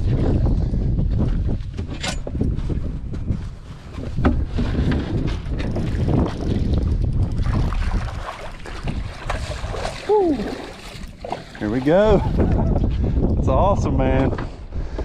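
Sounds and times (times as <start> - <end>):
wind buffeting microphone: 0.0 - 15.0
water splashing around net: 7.4 - 12.4.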